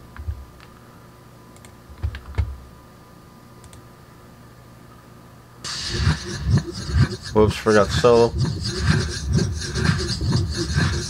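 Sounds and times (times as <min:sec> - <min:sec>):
faint steady hum: 0:00.0 - 0:11.0
keyboard and mouse clicks: 0:01.6 - 0:02.5, 0:03.6 - 0:03.8.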